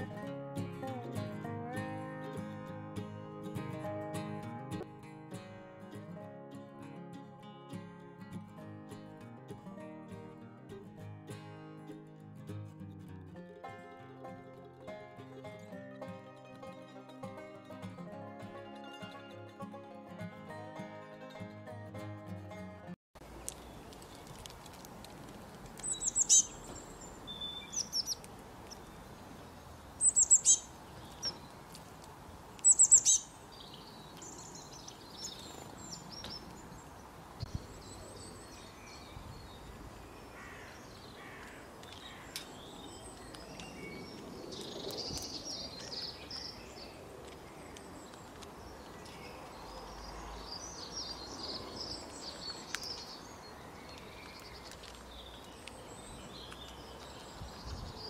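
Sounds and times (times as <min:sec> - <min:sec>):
faint outdoor background: 0:00.0 - 0:58.0
small birds chirping: 0:23.2 - 0:58.0
sharp high bird calls: 0:25.8 - 0:28.9, 0:30.0 - 0:31.4, 0:32.6 - 0:33.4.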